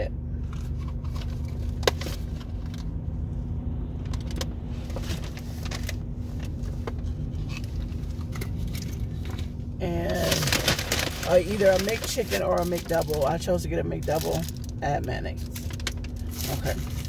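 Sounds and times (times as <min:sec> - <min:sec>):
car engine idling: 0:00.0 - 0:17.0
paper bag crinkling: 0:10.0 - 0:14.7, 0:15.3 - 0:17.0.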